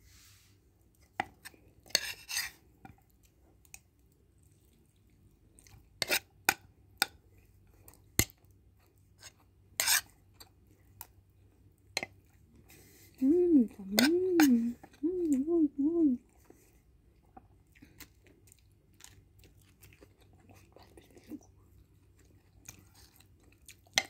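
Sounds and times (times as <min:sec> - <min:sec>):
short rustling scrapes: 0:00.0 - 0:00.6
person chewing food: 0:01.0 - 0:06.4, 0:16.2 - 0:24.0.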